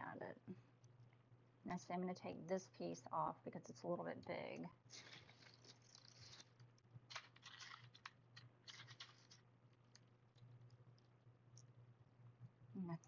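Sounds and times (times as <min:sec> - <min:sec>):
steady low hum: 0:00.0 - 0:13.0
glass pieces scratching and clicking: 0:07.2 - 0:09.4.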